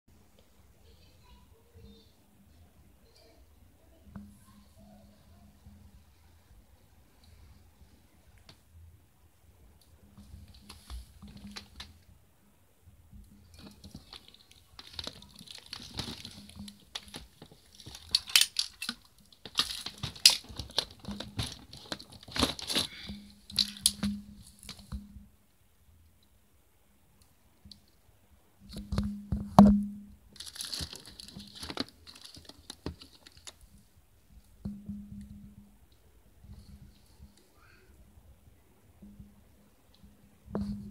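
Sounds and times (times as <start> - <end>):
plastic bags crinkling: 13.5 - 24.9, 30.3 - 33.7.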